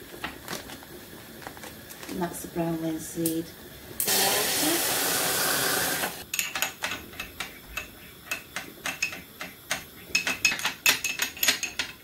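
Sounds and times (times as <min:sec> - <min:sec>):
metal spoon clinking against glass: 0:10.1 - 0:12.0.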